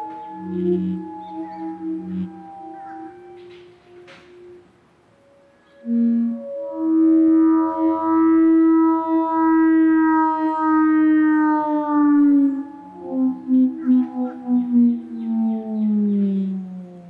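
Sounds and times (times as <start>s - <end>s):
theremin notes: 0.0s - 17.0s.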